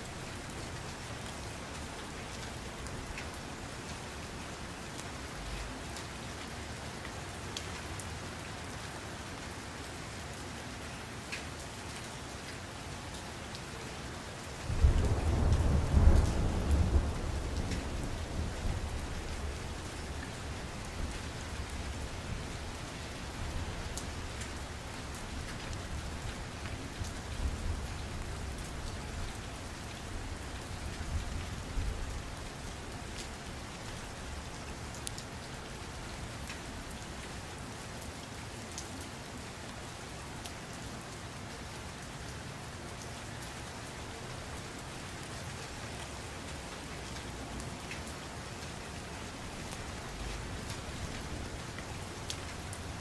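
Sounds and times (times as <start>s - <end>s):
steady rain: 0.0s - 53.0s
thunder rumble: 14.7s - 19.4s.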